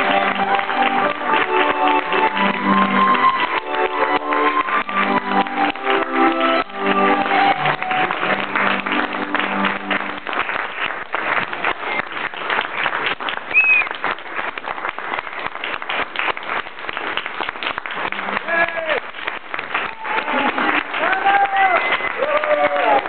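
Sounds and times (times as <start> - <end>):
audience applauding: 0.0 - 23.0.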